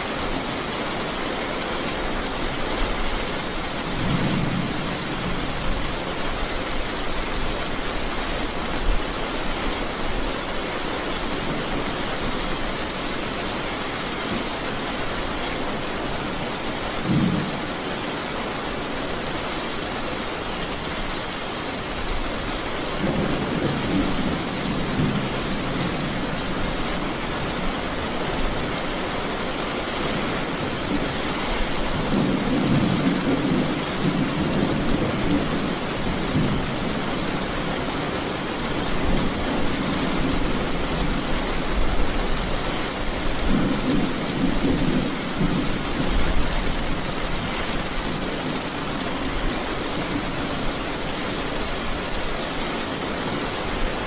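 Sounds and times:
heavy rain falling: 0.0s - 54.0s
low rolling thunder: 3.9s - 5.9s, 23.0s - 26.7s.

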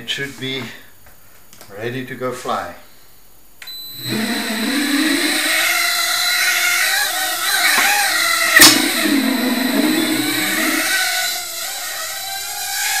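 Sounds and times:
quadcopter propellers whining: 3.8s - 13.0s.

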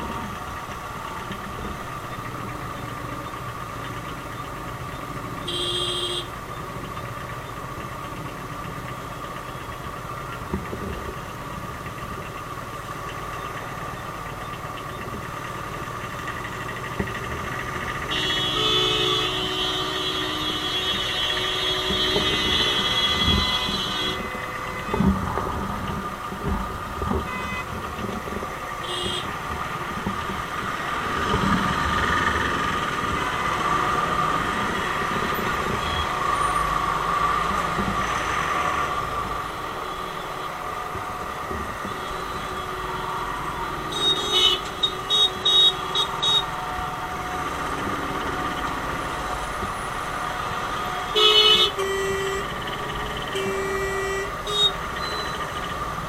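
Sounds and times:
vehicle engines in traffic: 0.0s - 56.0s
high steady horn tone: 5.4s - 6.4s, 17.8s - 25.3s, 27.1s - 27.8s, 28.8s - 30.0s, 33.6s - 36.8s, 41.5s - 55.6s.

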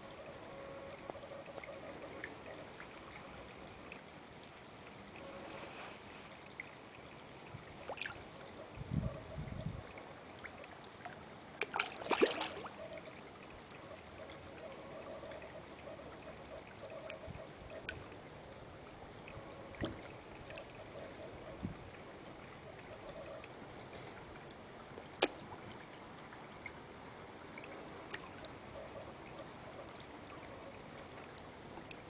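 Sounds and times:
fish splashing at pond surface: 11.0s - 13.1s, 25.1s - 25.9s.

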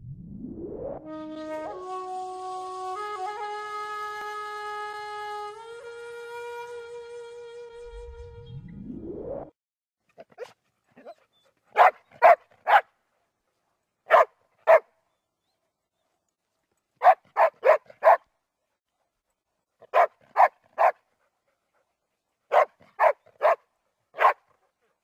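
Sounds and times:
dog barking: 10.2s - 12.9s, 14.1s - 14.9s, 17.0s - 18.3s, 19.8s - 21.0s, 22.5s - 24.6s.

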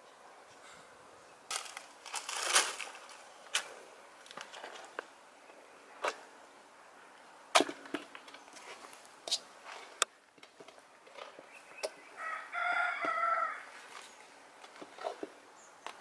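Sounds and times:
dry leaves crunching underfoot: 1.5s - 5.0s.

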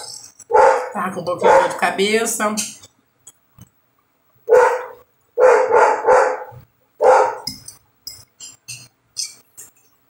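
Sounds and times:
dog barking: 0.5s - 1.8s, 4.5s - 7.5s.

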